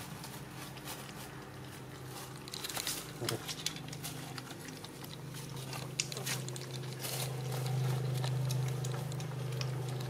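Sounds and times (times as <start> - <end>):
puppies lapping milk: 0.0 - 10.0
steady low hum: 0.0 - 10.0.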